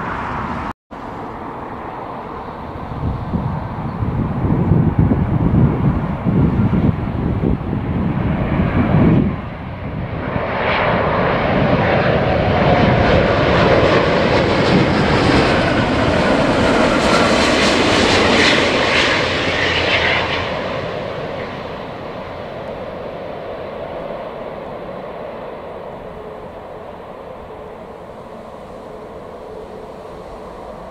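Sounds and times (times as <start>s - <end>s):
jet airliner passing overhead: 0.0s - 30.9s.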